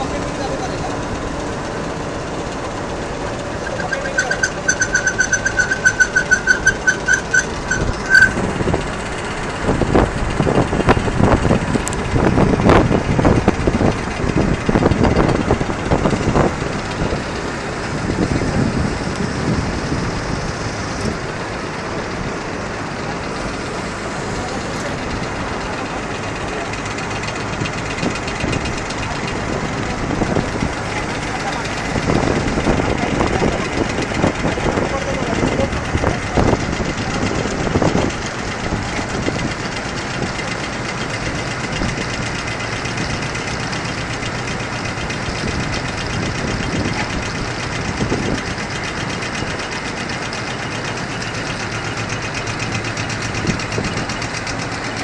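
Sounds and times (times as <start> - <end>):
loud rattling: 0.0 - 20.2, 20.8 - 55.0
conveyor machine rumble: 0.0 - 55.0
electronic warning beeper: 3.6 - 8.4.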